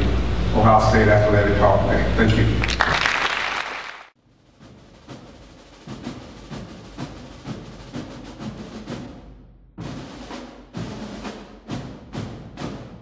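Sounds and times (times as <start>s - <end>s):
applause: 2.6s - 4.2s
music with steady drum beat: 4.3s - 13.0s.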